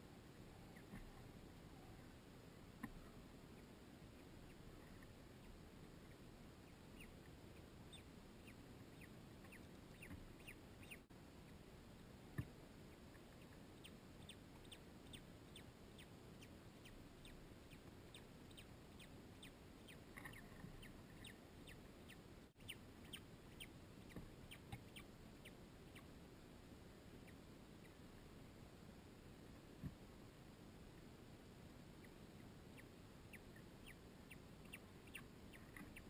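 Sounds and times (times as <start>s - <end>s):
bird chick peeping: 0.3s - 2.2s, 2.8s - 11.6s, 12.3s - 26.1s, 32.0s - 36.0s.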